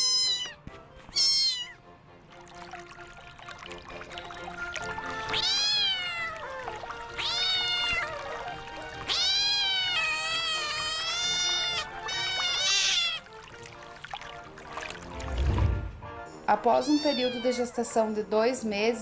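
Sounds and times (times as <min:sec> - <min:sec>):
cat meowing: 0:00.0 - 0:01.8, 0:04.9 - 0:13.5, 0:16.8 - 0:17.8
soft background music: 0:00.0 - 0:19.0.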